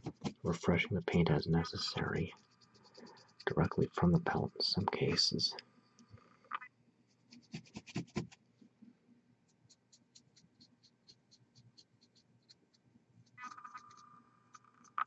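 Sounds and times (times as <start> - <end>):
paintbrush scratching and clicking: 2.2 - 3.8, 7.2 - 8.4, 9.5 - 15.0.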